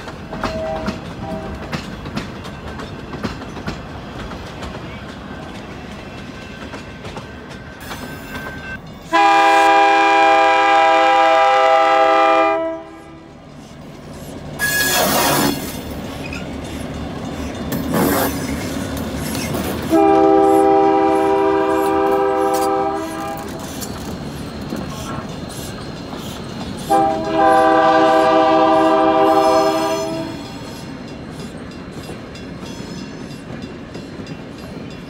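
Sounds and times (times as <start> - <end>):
train rumbling over rail joints: 0.0 - 35.0
locomotive horn blasts: 0.4 - 1.7, 9.1 - 13.3, 19.9 - 23.6, 26.9 - 30.5.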